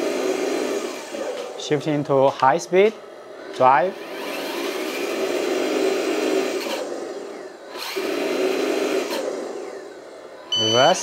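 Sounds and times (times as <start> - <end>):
toy truck electric motor whirring: 0.0 - 1.5, 3.4 - 10.6.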